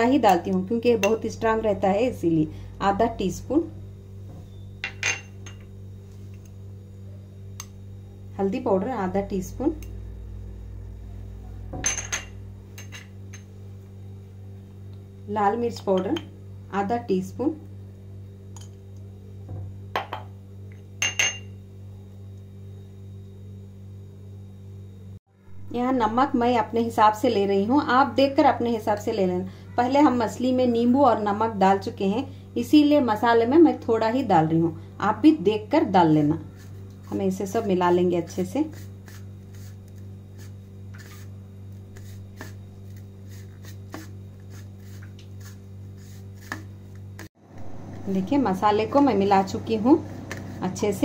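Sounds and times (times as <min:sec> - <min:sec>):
steady low hum: 0:00.0 - 0:51.0
kitchenware clinking: 0:04.8 - 0:05.6, 0:11.8 - 0:13.5, 0:21.0 - 0:21.5
fingers rustling dry spices: 0:36.5 - 0:47.2.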